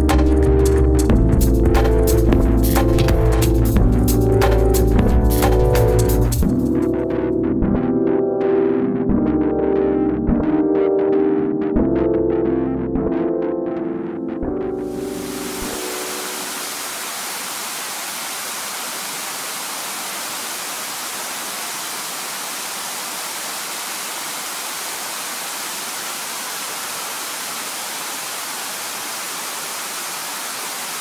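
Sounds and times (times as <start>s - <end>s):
static hiss: 14.9s - 31.0s.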